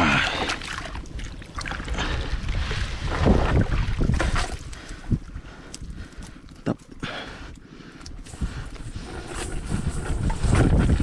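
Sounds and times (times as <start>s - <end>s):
water splashing and sloshing: 0.0s - 11.0s
wind buffeting microphone: 0.8s - 6.3s, 8.1s - 11.0s.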